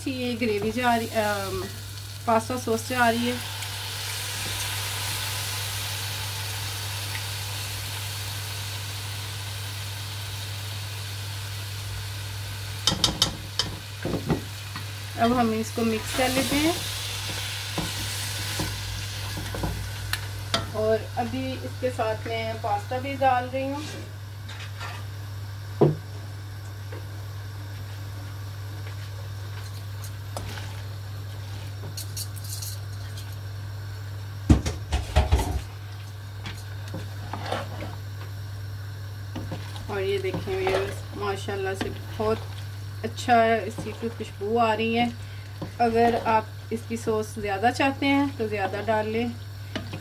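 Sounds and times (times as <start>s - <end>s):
food sizzling in a pan: 0.0s - 24.2s, 34.9s - 50.0s
low steady hum: 0.0s - 50.0s.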